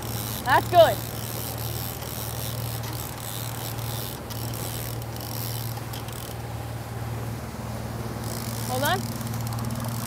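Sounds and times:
outboard engine humming: 0.0s - 10.0s.

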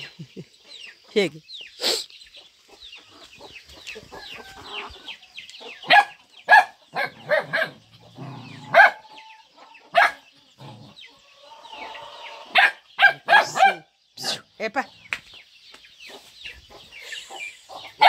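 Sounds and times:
small birds chirping: 0.0s - 18.0s
young dog barking: 5.9s - 9.1s, 9.9s - 10.3s, 12.5s - 14.4s.

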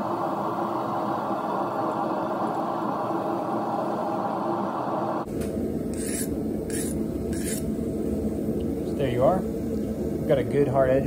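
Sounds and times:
steady low noise: 0.0s - 11.0s
file scraping knife edge: 6.0s - 7.6s.

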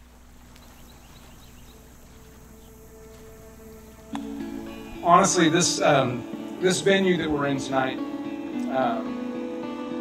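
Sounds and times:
faint chirp: 0.0s - 5.2s
light hiss: 0.0s - 9.4s
soft background music: 0.2s - 10.0s.

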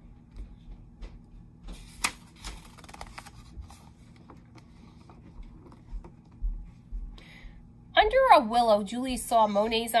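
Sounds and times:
book page turning: 1.7s - 6.4s.

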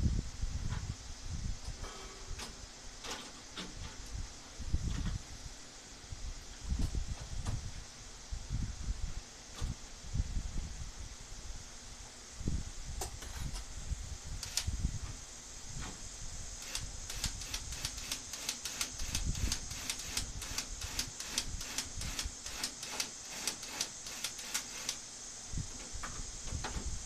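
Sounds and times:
cordless drill clicking: 14.4s - 14.7s, 16.6s - 25.0s.

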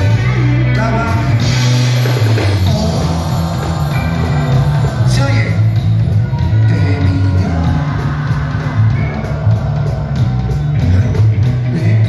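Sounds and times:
electric guitar: 0.0s - 12.0s
heavy steady bass line: 0.0s - 12.0s
live rock band playing: 0.0s - 12.0s
person singing: 2.4s - 5.6s.

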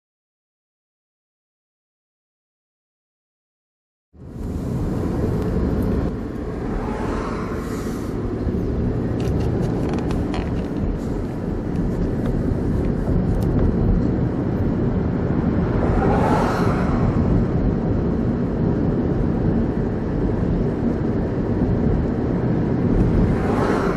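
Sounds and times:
rising whoosh: 4.2s - 11.7s, 14.4s - 18.7s, 22.8s - 23.9s
car driving heard from inside: 4.2s - 23.9s.

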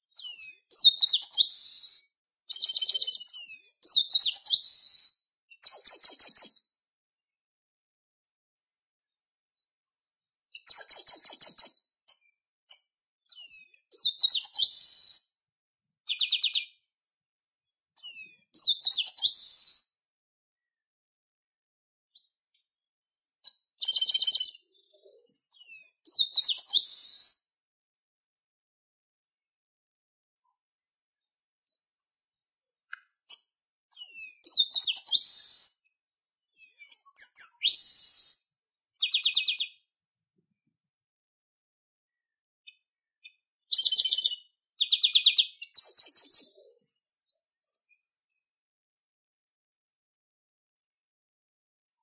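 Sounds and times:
faint bird chirps: 0.0s - 6.8s, 8.6s - 15.4s, 16.0s - 17.1s, 17.7s - 20.0s, 23.2s - 27.6s, 30.4s - 40.5s, 42.1s - 48.6s
blackbird singing: 0.1s - 6.7s, 9.9s - 15.2s, 16.0s - 16.9s, 18.0s - 19.8s, 23.4s - 27.4s, 30.8s - 35.8s, 36.5s - 39.9s, 42.6s - 48.2s.

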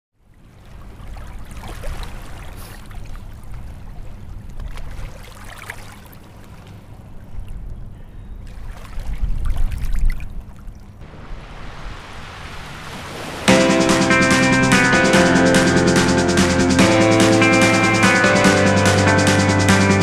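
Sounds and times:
water running and trickling: 11.1s - 13.5s.

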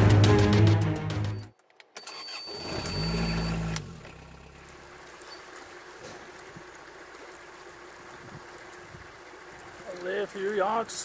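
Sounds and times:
boat diesel engine humming: 2.5s - 11.0s
faint water wash: 2.6s - 11.0s.

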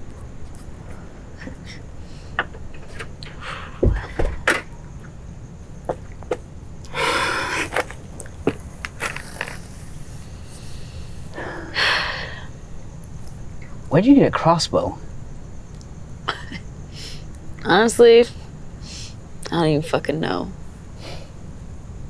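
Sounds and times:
low thuds: 3.7s - 5.0s
footsteps on concrete: 7.7s - 9.6s.

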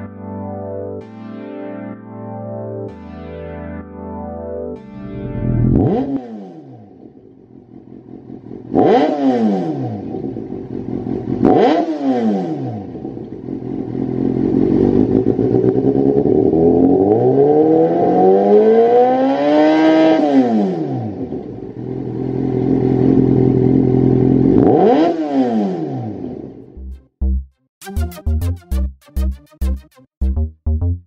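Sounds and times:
motorcycle engine revving: 5.0s - 26.8s.

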